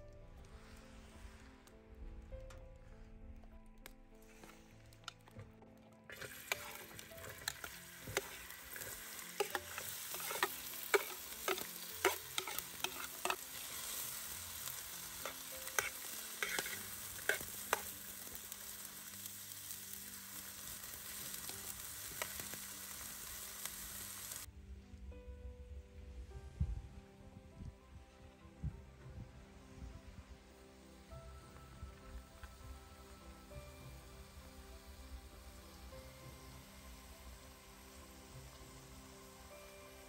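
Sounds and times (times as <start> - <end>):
spatula clicks: 6.1 - 13.4
onions sizzling in hot oil: 6.1 - 24.5, 30.8 - 40.0.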